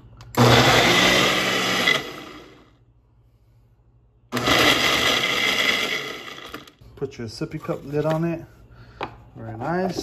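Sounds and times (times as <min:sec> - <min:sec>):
blender running: 0:00.4 - 0:02.7, 0:04.3 - 0:06.8.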